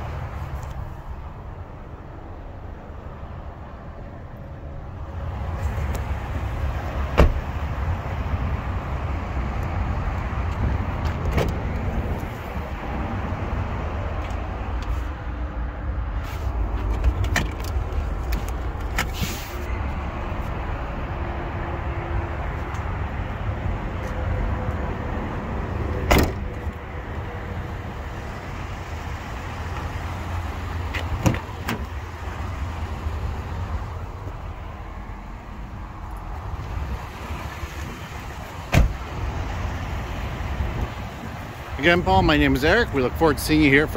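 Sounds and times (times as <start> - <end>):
handling knocks and clicks: 16.7 - 19.2.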